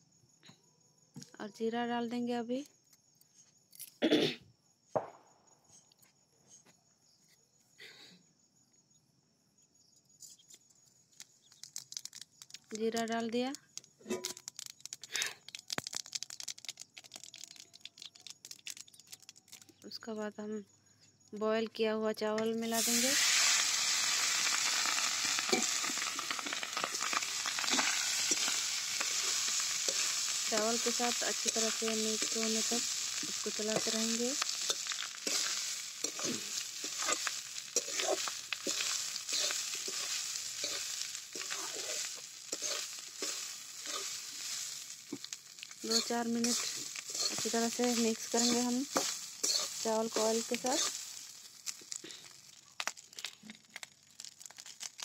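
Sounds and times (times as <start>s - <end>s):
crickets chirring: 0.0s - 55.0s
seeds crackling in hot oil: 11.1s - 20.1s, 22.4s - 55.0s
metal spatula scraping: 25.4s - 51.3s.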